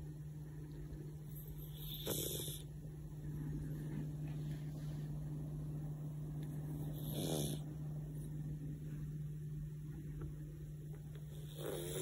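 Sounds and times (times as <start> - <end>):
cat snoring: 1.3 - 2.7, 6.8 - 7.7, 11.3 - 12.0.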